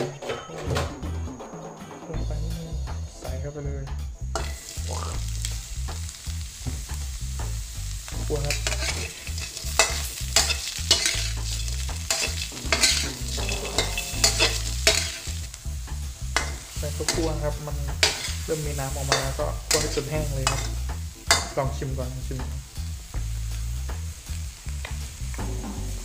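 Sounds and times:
pupae sizzling in a wok: 2.3 - 26.0
spatula scraping a pan: 8.4 - 15.6, 16.4 - 21.6
low rumble: 11.4 - 26.0.

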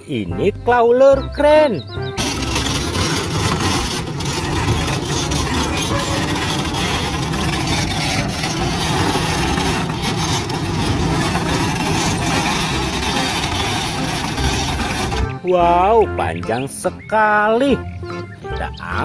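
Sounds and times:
crane diesel engine running: 1.9 - 15.4.

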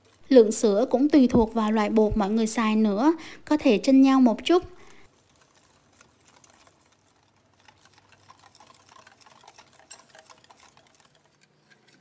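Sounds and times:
wire whisk clicking against glass bowl: 8.5 - 12.0.

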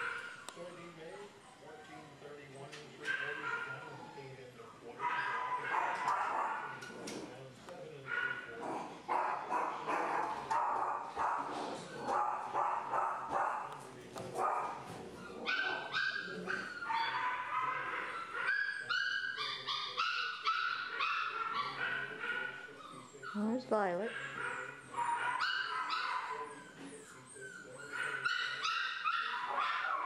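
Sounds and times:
dogs barking and yipping: 0.0 - 0.5, 5.0 - 6.9, 9.1 - 30.0.

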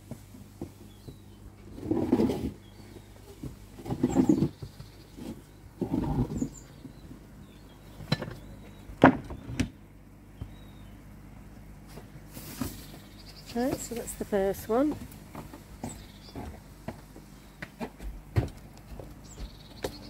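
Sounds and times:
steady low hum: 0.0 - 20.0
plastic tray scuffing: 11.9 - 14.0.

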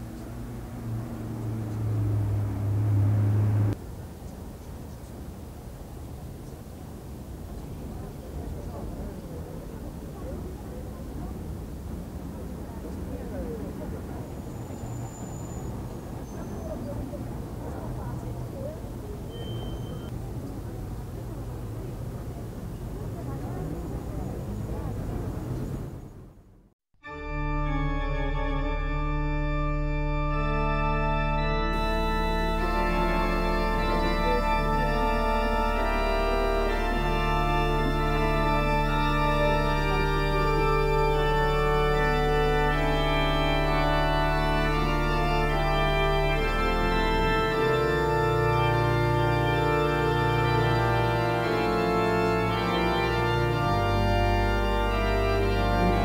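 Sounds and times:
organ chords: 0.0 - 3.8, 27.0 - 56.0.

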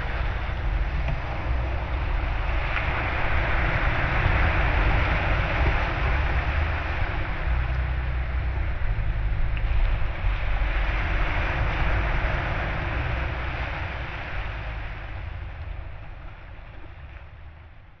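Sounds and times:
rumbling hissing noise: 0.0 - 18.0.

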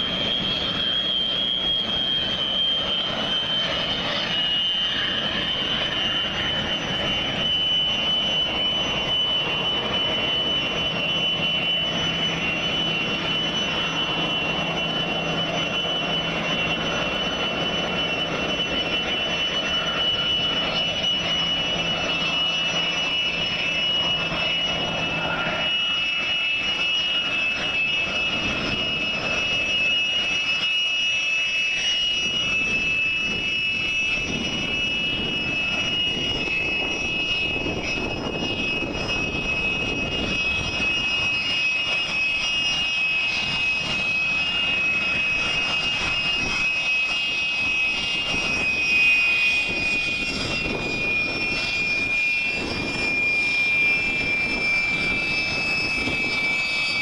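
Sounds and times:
jet engine rushing noise: 0.0 - 57.0
jet engines whining: 0.0 - 57.0.

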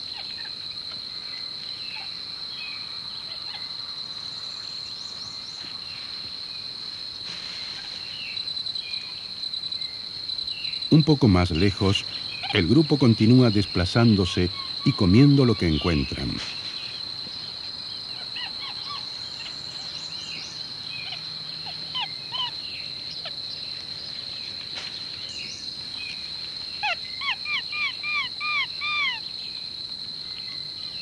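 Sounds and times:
monkeys chirping: 11.4 - 16.4, 18.1 - 20.0, 21.0 - 22.6, 26.8 - 29.2.

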